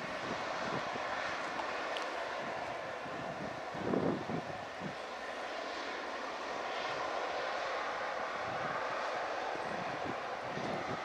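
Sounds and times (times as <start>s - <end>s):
jet engines running: 0.0s - 11.0s.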